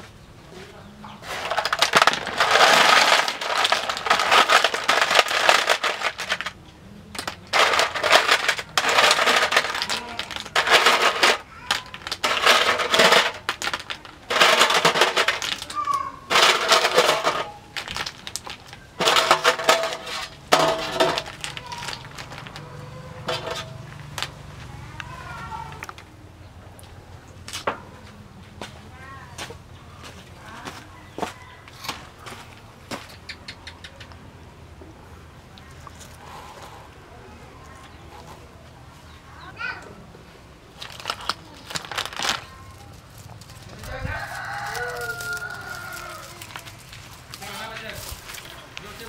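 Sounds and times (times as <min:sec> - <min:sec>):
snail shells clattering on metal tray: 0:01.1 - 0:26.2, 0:40.6 - 0:49.0.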